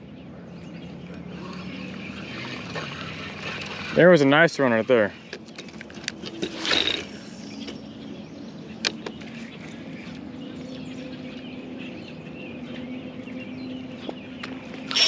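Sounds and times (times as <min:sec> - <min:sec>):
spinning reel humming: 0:01.3 - 0:05.8.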